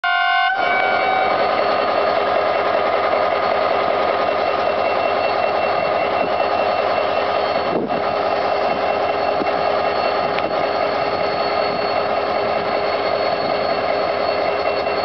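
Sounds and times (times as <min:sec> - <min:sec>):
locomotive horn: 0:00.0 - 0:01.4
diesel locomotive engine drone: 0:00.0 - 0:15.0.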